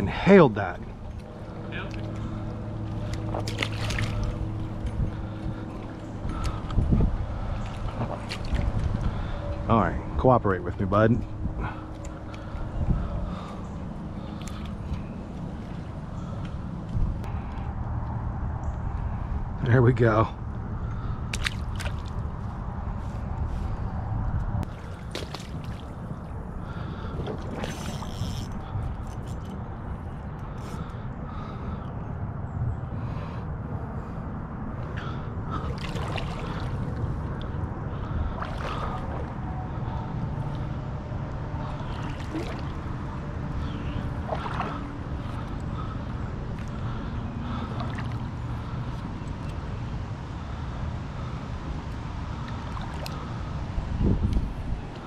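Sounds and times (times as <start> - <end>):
wind buffeting microphone: 0.8 - 17.3, 51.8 - 55.0.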